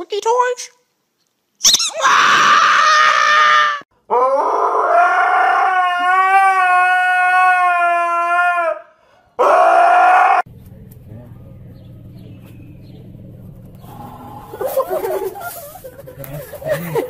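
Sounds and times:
dog howling: 2.0s - 10.5s.

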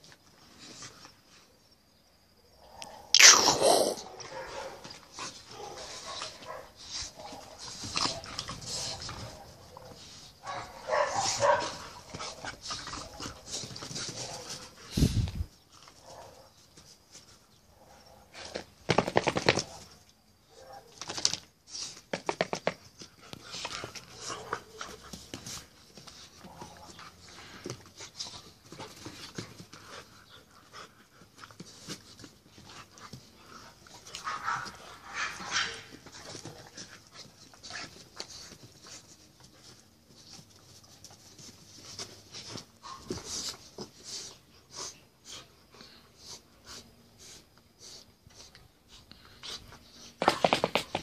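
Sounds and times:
dogs barking: 9.7s - 11.8s.

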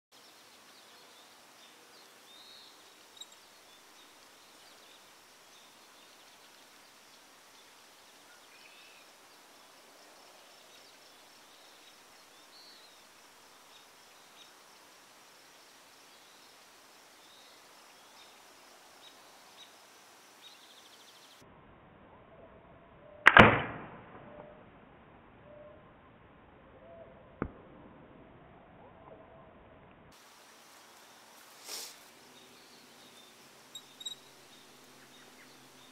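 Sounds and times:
bird chirps: 0.2s - 6.5s, 31.7s - 35.9s.

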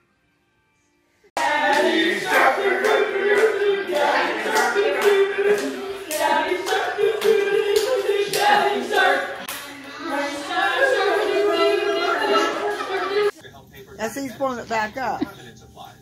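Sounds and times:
people clapping in time: 1.4s - 13.0s
group of people singing: 1.4s - 13.4s.

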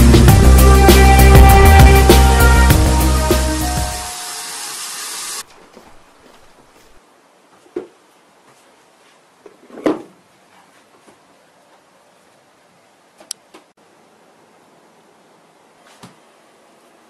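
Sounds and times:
background music: 0.0s - 5.4s.

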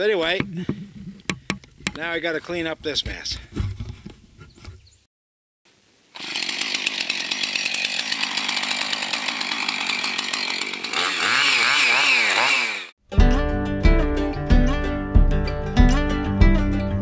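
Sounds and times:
chainsaw running: 6.2s - 13.0s.

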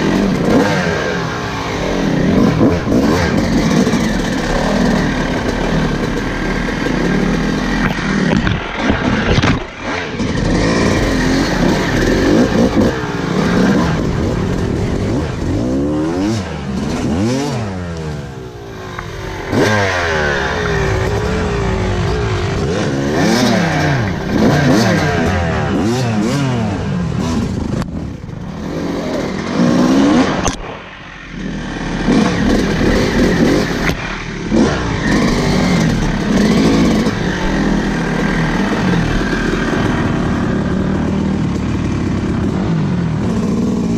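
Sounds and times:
dirt bike engine revving: 0.0s - 43.9s
bike clattering over rough ground: 3.4s - 11.2s.

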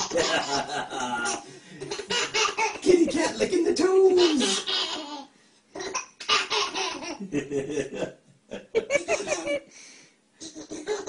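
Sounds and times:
adult chuckling: 0.0s - 3.1s, 7.0s - 9.7s
baby laughing: 0.0s - 3.4s, 4.1s - 7.3s, 10.4s - 11.0s.

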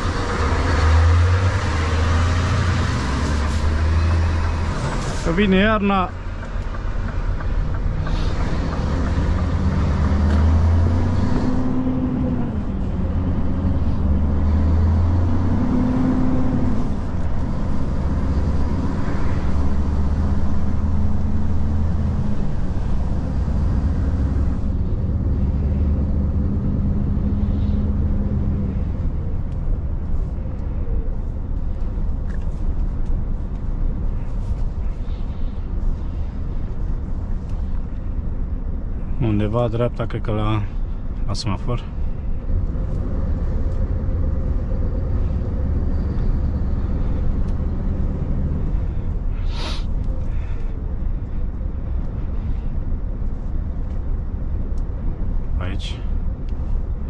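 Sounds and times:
truck diesel engine shifting gears: 0.0s - 34.7s, 41.9s - 57.0s.

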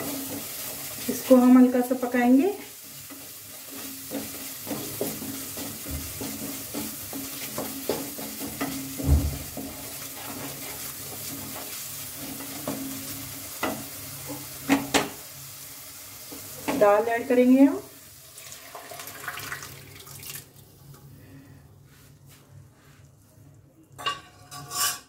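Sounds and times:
sauce sizzling in a pan: 0.0s - 20.2s
wooden spatula scraping pan: 2.8s - 14.8s.

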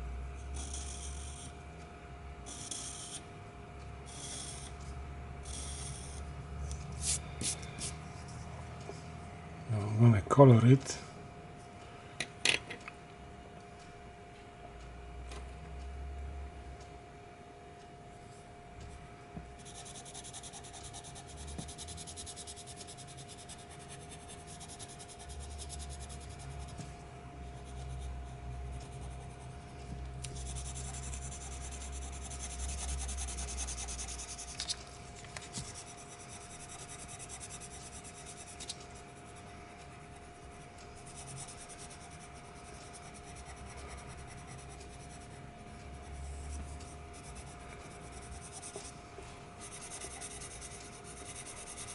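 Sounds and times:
faint steady hum: 0.0s - 51.9s
pencil shading on paper: 0.6s - 1.5s, 2.5s - 3.2s, 4.1s - 4.7s, 5.4s - 6.2s, 19.6s - 26.8s, 30.2s - 34.7s, 35.6s - 49.0s, 49.6s - 51.9s.

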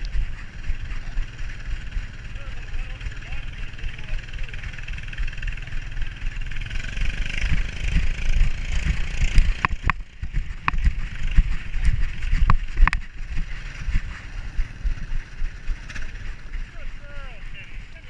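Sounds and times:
camera rumbling and knocking: 0.0s - 17.7s
wind on microphone: 7.1s - 16.7s
sharp clicks: 7.4s - 13.2s.

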